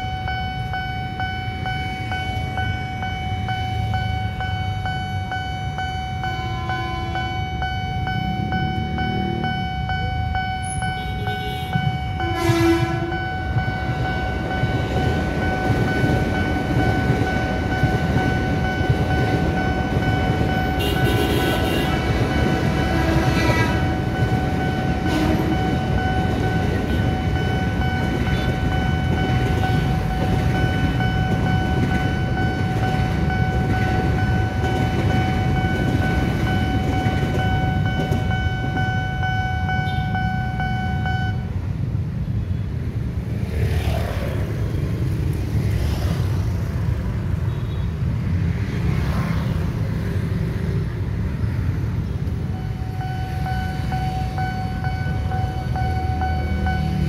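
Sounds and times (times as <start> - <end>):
low rumble of passing train: 0.0 - 57.0
train horn steady tone: 5.6 - 7.7, 10.6 - 13.7, 20.6 - 30.0.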